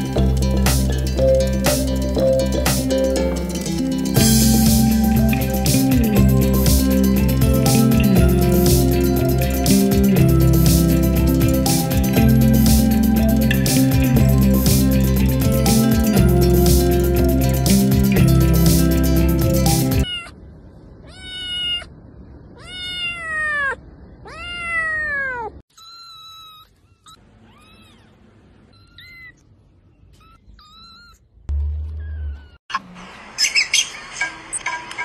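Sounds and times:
kittens meowing: 20.0s - 20.4s, 21.0s - 29.4s, 30.1s - 31.3s.

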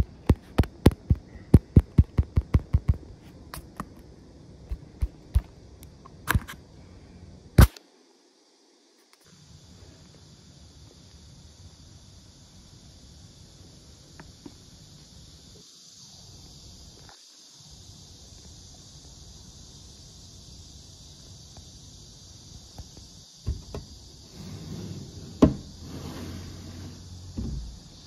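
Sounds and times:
steady hiss: 0.0s - 28.0s
sharp click: 7.6s - 7.9s.

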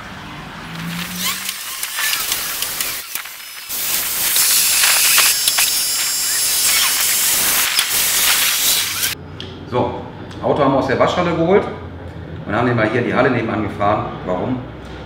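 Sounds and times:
car wash spraying water: 0.8s - 9.2s.

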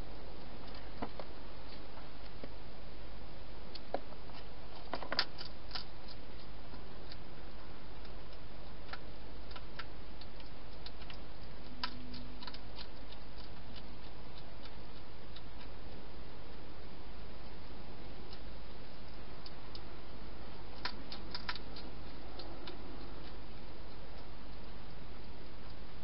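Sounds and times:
steady background hiss: 0.0s - 26.0s
hedgehog chewing clicks: 3.7s - 16.6s, 18.2s - 19.9s, 20.5s - 25.9s.

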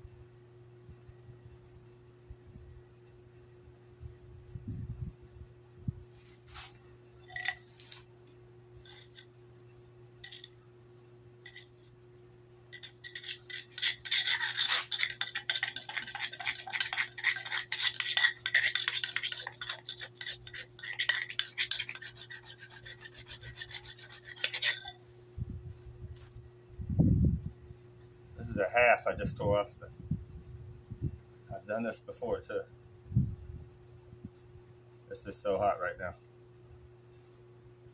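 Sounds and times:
board rasping rub on concrete: 11.5s - 11.8s, 12.8s - 24.9s.

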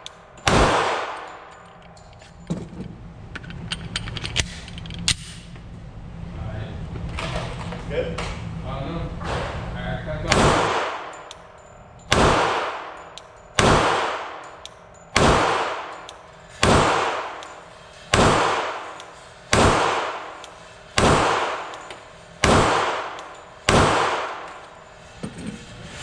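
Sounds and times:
pistol shots echoing indoors: 0.0s - 1.6s, 10.2s - 24.9s.

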